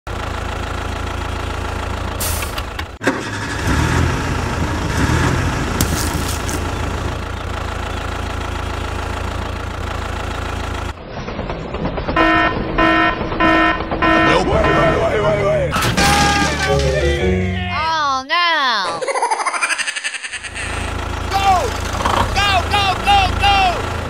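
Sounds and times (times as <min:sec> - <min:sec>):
tractor engine running: 0:00.1 - 0:17.7, 0:20.4 - 0:24.0
horn blasts: 0:12.2 - 0:15.4.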